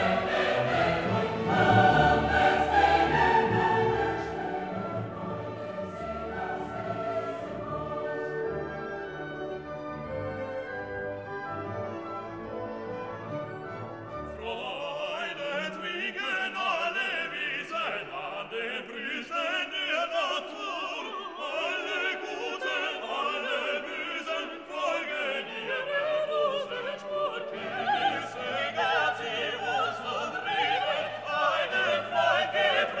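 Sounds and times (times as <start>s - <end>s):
orchestral music: 0.0s - 16.9s.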